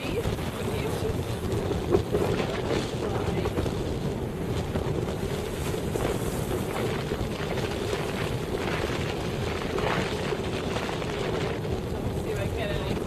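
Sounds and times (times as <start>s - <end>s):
sea water washing across reef: 0.0s - 13.0s
wind buffeting microphone: 0.0s - 13.0s.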